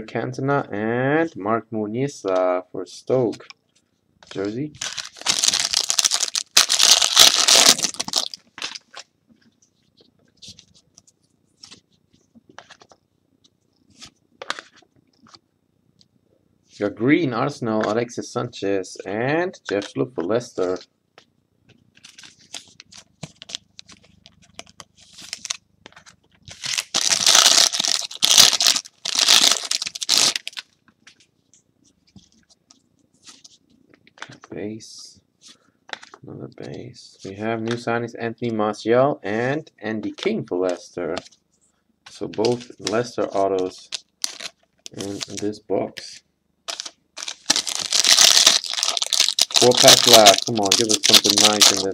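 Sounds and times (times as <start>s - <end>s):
foil wrapper tearing and crinkling: 4.8s - 9.1s, 24.6s - 25.6s, 26.5s - 30.7s, 42.4s - 45.4s, 46.7s - 51.9s.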